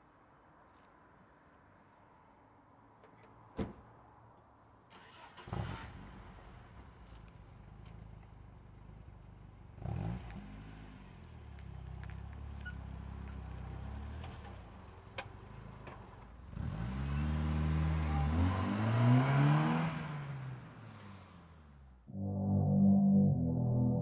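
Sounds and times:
car engine starting and idling: 0:04.9 - 0:09.5
car engine revving: 0:16.5 - 0:21.6.

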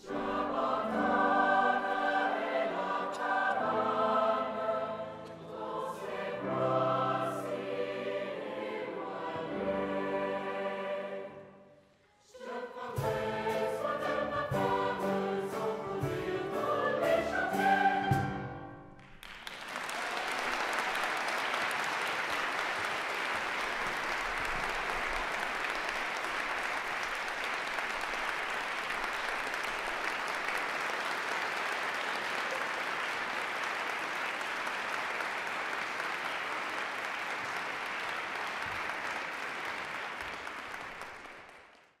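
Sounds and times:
audience applauding: 0:19.0 - 0:42.0.

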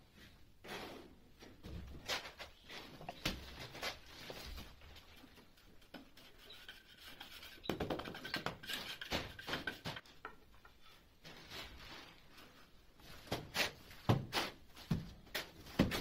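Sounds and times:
wood knocks and scrapes: 0:01.6 - 0:11.8.

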